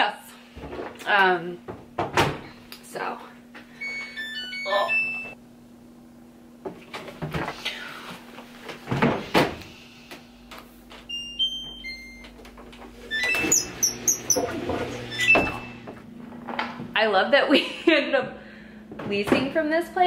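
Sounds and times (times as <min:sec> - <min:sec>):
electronic beep tune: 0:03.8 - 0:05.4
higher beeps: 0:03.8 - 0:05.4.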